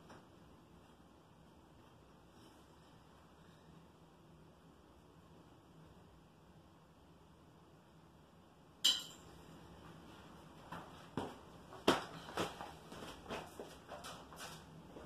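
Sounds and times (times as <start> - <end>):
sharp clink with ring: 8.8 - 9.3.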